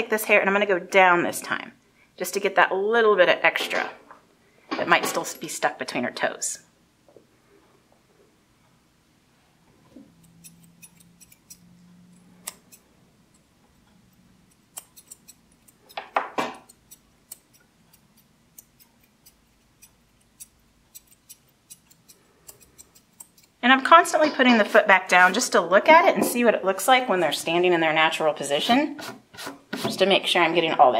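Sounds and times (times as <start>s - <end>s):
scissors snipping hair: 10.2s - 12.8s, 14.4s - 23.6s.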